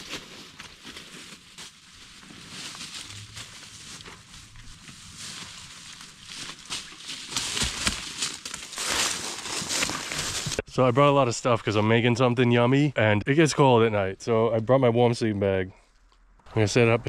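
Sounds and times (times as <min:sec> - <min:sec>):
rustling through dry leaves: 0:00.0 - 0:10.6
twig crackles: 0:00.0 - 0:10.6.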